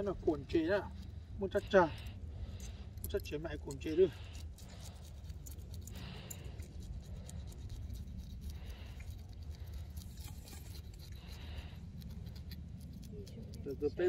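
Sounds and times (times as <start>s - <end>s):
low steady rumble: 0.0s - 14.0s
knife scraping fish: 9.9s - 12.2s.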